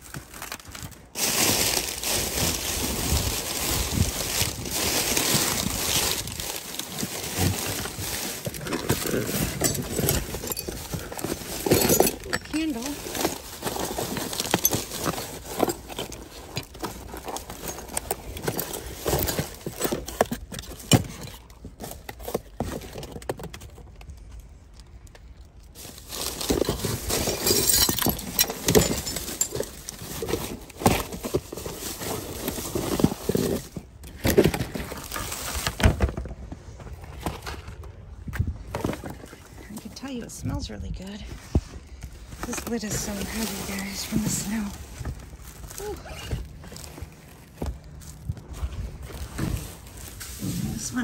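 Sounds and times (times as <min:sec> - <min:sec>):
cardboard scraping: 0:00.0 - 0:23.4, 0:25.8 - 0:39.7, 0:41.2 - 0:51.0
plastic crinkling: 0:00.0 - 0:36.0, 0:42.0 - 0:51.0.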